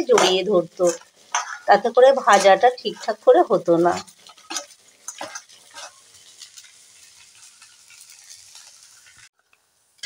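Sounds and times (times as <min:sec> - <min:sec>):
vegetables tossed in metal colander: 0:00.0 - 0:08.8
sizzle of frying oil: 0:00.0 - 0:10.0.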